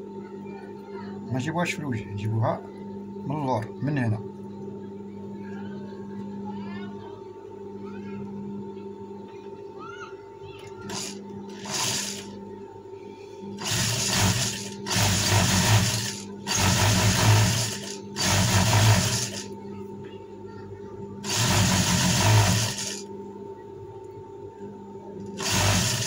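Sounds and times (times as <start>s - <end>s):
sewing machine stitching: 10.9s - 12.3s, 13.6s - 19.5s, 21.2s - 23.0s, 25.4s - 26.0s.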